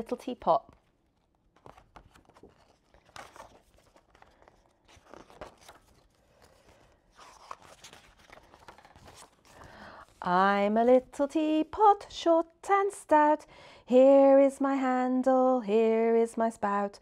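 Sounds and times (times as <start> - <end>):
paper pages rustling: 0.2 - 10.4.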